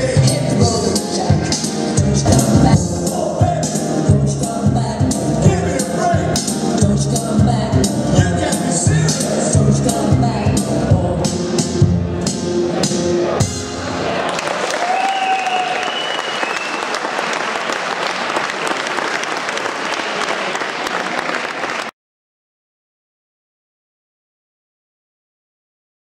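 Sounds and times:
audience cheering: 13.8 - 21.9
audience applauding: 14.0 - 22.0.

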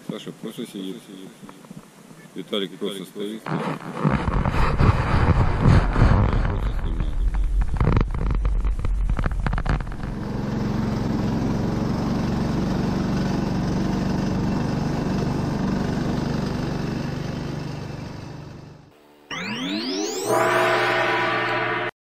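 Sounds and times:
off-road vehicle engine running: 4.2 - 18.9.

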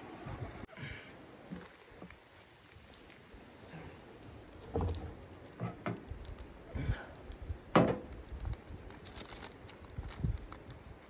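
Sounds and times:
dull handling knocks and rustles: 4.6 - 6.1.

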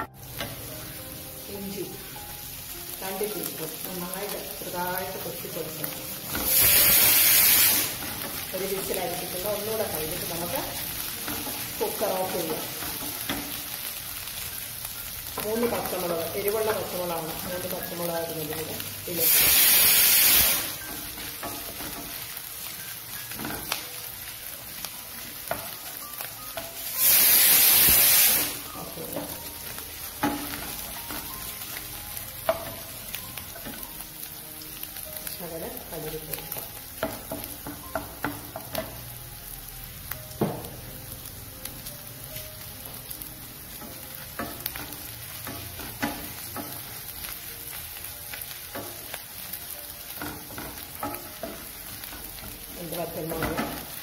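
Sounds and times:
food sizzling in hot oil: 0.0 - 54.0
loud burst of hiss: 6.5 - 8.0, 19.2 - 20.8, 26.9 - 28.7.

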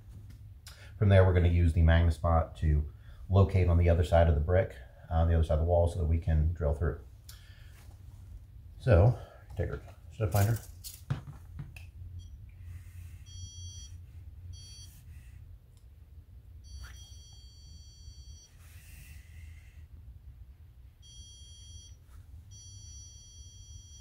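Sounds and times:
stud finder beeping: 12.2 - 12.4, 13.2 - 15.0, 16.6 - 18.6, 21.0 - 24.0.

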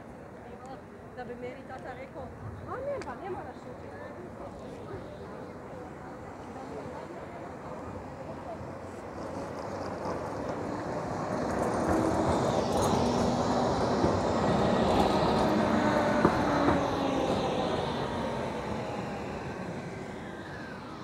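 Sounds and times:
tram wheels rumbling on rails: 2.3 - 21.0
tram motors whining: 4.4 - 21.0.

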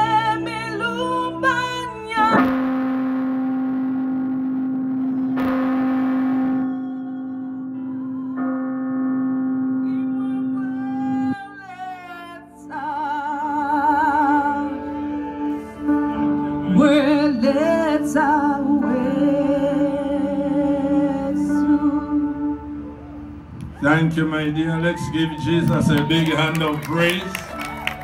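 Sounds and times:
woman singing with vibrato: 0.0 - 2.8, 5.0 - 23.1
held keyboard chord: 0.0 - 24.3.

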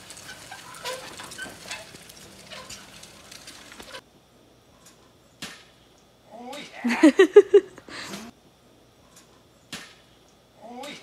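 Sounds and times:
seeder rolling and clicking: 0.0 - 4.0.

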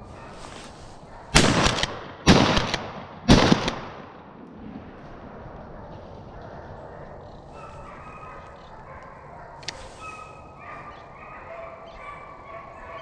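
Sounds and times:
hounds baying: 5.6 - 13.0.

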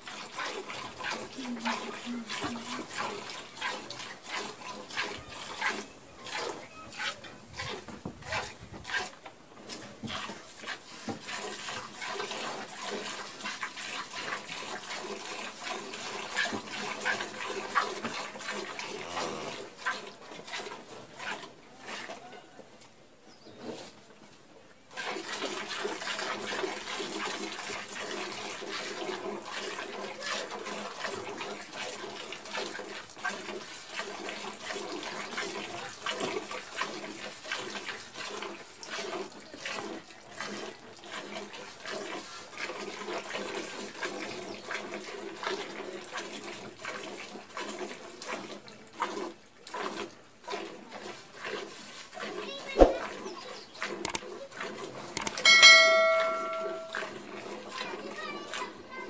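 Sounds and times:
milk squirting into pail: 24.9 - 55.4.

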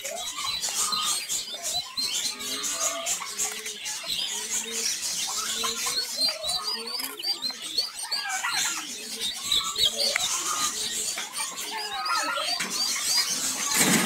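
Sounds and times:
chicks peeping: 0.0 - 14.0.

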